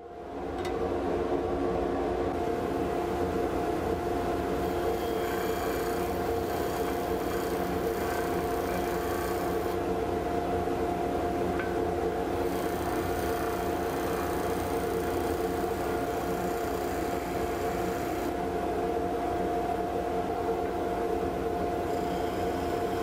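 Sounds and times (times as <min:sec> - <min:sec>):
disc sander motor hum: 0:02.4 - 0:18.5, 0:21.5 - 0:23.0
wood block against sanding disc: 0:04.6 - 0:09.8.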